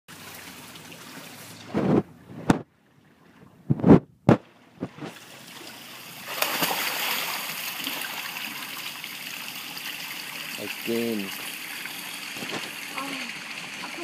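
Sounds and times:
water splashing from swimmer: 0:04.3 - 0:11.3.

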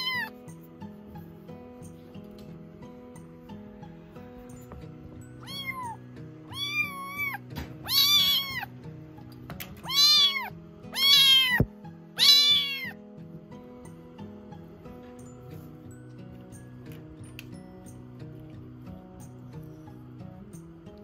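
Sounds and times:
kitten meowing: 0:00.0 - 0:00.3, 0:05.4 - 0:08.7, 0:09.8 - 0:13.0.

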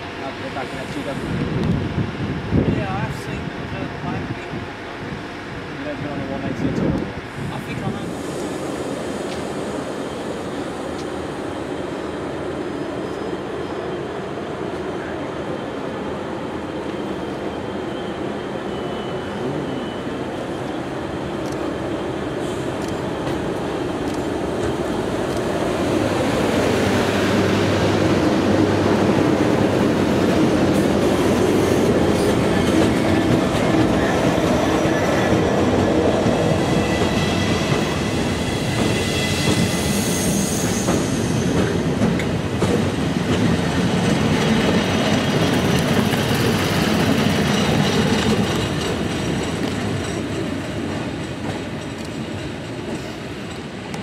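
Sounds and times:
high wheel squeal: 0:36.6 - 0:41.6.

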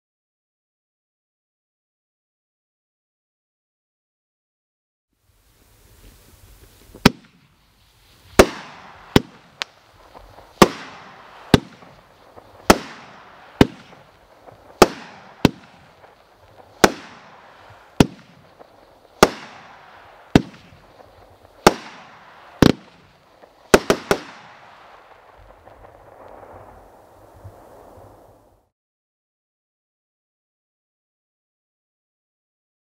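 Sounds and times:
firework bangs: 0:05.7 - 0:28.7.

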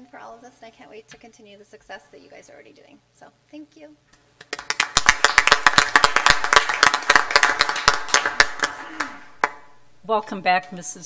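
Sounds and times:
people applauding: 0:04.4 - 0:09.7.

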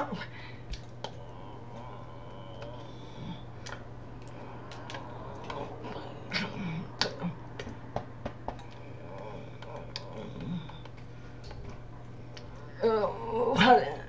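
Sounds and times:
low electrical hum: 0:00.0 - 0:14.0
faint mouth sounds: 0:00.7 - 0:07.8, 0:08.5 - 0:12.8
hands clicking and tapping: 0:07.0 - 0:11.8.

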